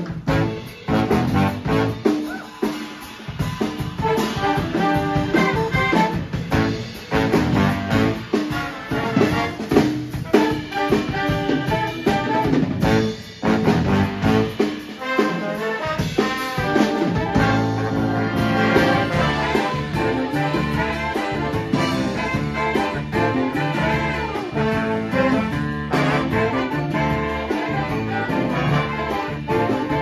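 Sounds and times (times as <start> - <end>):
big band playing swing jazz: 0.0 - 30.0.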